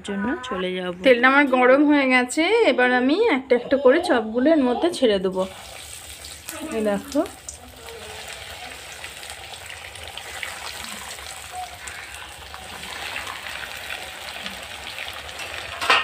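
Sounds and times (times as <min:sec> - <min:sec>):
hot oil sizzling and crackling: 0:05.3 - 0:16.0.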